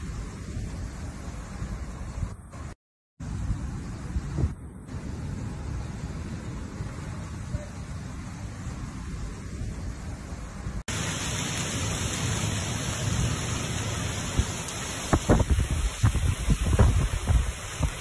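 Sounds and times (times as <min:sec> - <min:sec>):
low rumbling noise: 0:00.0 - 0:18.0
heavy rain downpour: 0:10.6 - 0:18.0
wind gusts buffeting microphone: 0:14.2 - 0:18.0.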